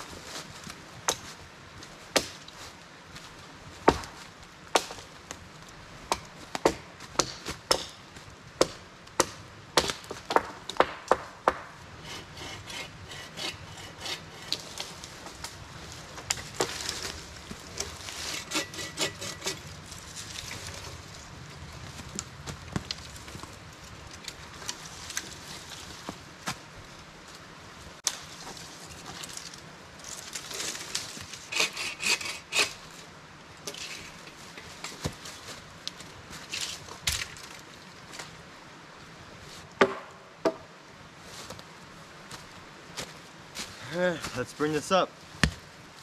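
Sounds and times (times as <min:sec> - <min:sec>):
rasping cutting strokes: 0:12.0 - 0:14.8, 0:18.2 - 0:19.6, 0:31.4 - 0:32.8.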